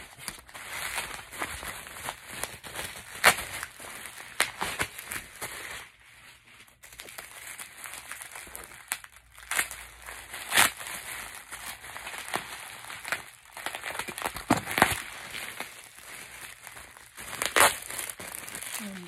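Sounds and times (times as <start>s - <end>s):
bubble wrap crackles: 0.0s - 19.0s
bubble wrap crinkling: 0.0s - 19.0s.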